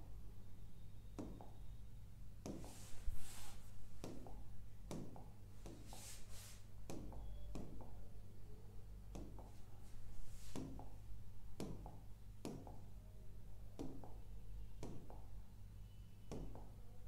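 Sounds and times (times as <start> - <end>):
pen tapping on glass screen: 1.2 - 1.6, 2.4 - 2.8, 4.0 - 5.8, 6.9 - 8.0, 9.1 - 9.6, 11.6 - 12.9, 13.8 - 14.2, 14.8 - 15.4, 16.3 - 16.8
scratchy swishes: 2.7 - 3.7.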